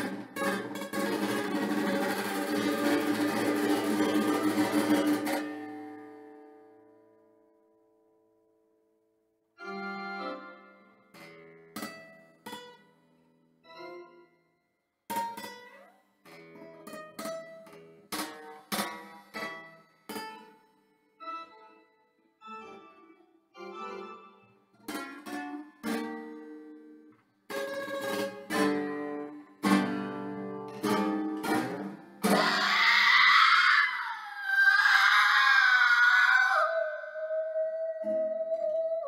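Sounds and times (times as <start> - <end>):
acoustic guitar playing: 0.0 - 7.0, 9.6 - 14.4, 15.1 - 22.0, 22.6 - 32.8
wailing singing voice: 32.2 - 39.0.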